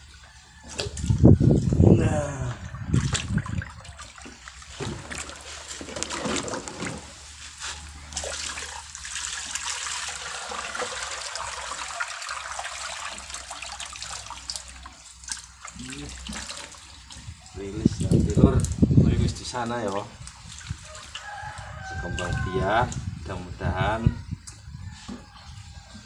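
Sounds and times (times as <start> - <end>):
water running across concrete: 2.7 - 23.1
hands splashing in water basin: 2.9 - 17.3, 19.8 - 21.3.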